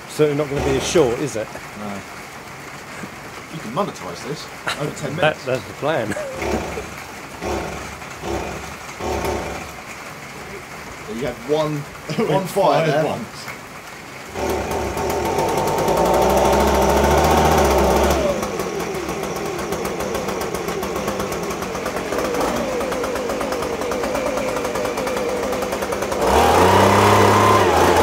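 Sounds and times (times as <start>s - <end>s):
petrol leaf blower engine: 0.0s - 1.4s, 6.1s - 10.6s, 14.3s - 28.0s.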